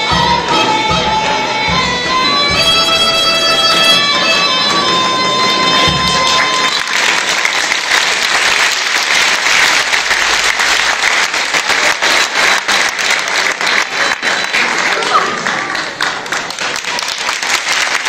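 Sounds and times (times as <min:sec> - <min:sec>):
folk band held note: 0:00.0 - 0:07.9
audience applauding: 0:04.5 - 0:18.0.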